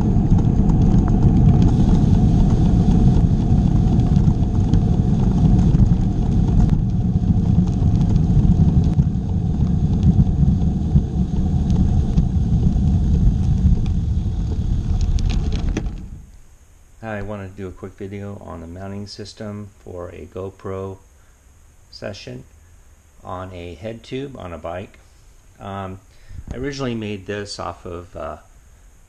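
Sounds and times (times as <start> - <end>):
wind rushing over microphone: 0.0 - 16.3, 26.3 - 27.0
bicycle tyres rolling on asphalt: 0.0 - 16.5.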